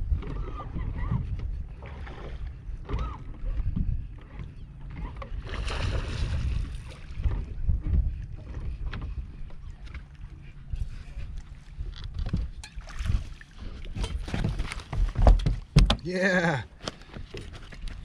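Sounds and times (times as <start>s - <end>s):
wind buffeting microphone: 0.0s - 15.9s
water lapping against hull: 0.0s - 18.0s.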